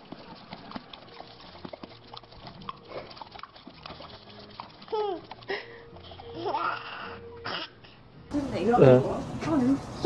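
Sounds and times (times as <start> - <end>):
dog licking wet lapping: 0.0 - 6.3.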